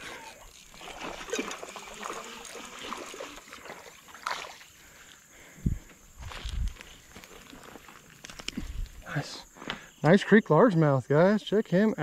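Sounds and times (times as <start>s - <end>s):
fish splashing in water: 0.0s - 4.7s.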